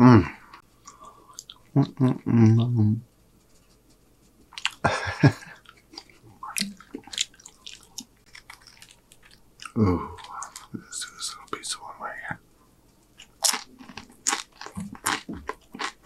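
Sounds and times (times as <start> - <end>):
wet mouth sounds: 4.5 - 4.8, 5.6 - 10.8
chewing crunchy chips: 4.5 - 10.8, 13.2 - 16.0.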